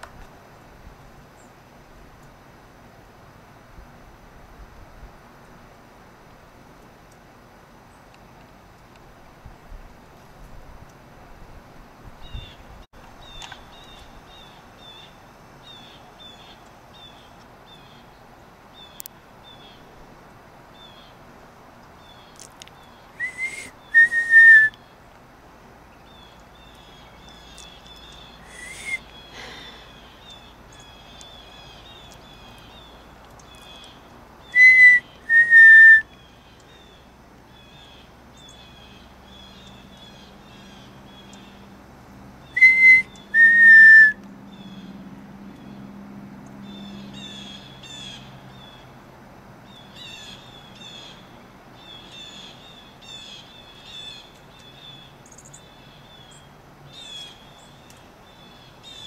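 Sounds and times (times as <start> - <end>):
small birds chirping: 12.2 - 20.0, 20.7 - 25.2, 25.8 - 41.8, 42.4 - 49.0, 49.6 - 59.0
person whistling two-note call: 23.2 - 24.8, 28.5 - 29.0, 34.6 - 36.0, 42.6 - 44.2.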